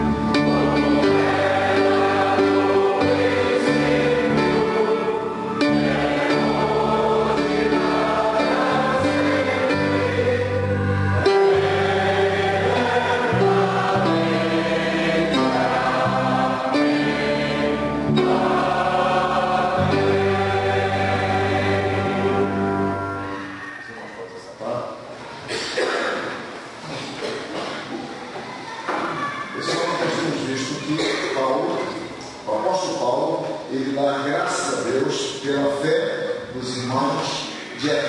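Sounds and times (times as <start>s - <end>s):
congregation singing a hymn: 0.0s - 24.1s
instrumental accompaniment: 0.0s - 24.3s.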